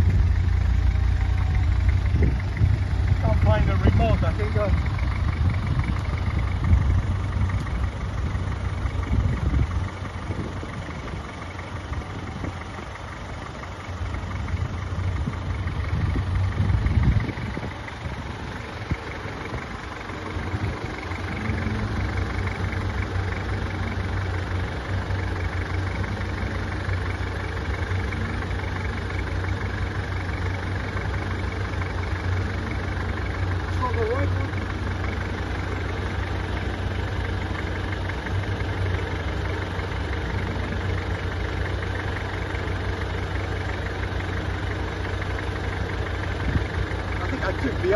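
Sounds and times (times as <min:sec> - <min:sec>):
car engine idling: 0:00.0 - 0:47.9.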